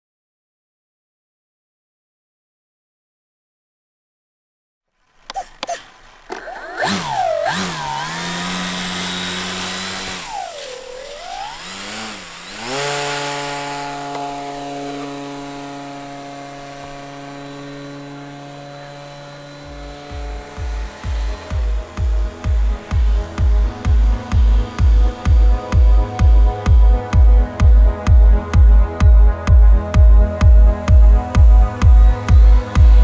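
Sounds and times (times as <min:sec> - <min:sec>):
droning synth chord: 0:06.7 - 0:33.0
drum beat: 0:19.7 - 0:33.0.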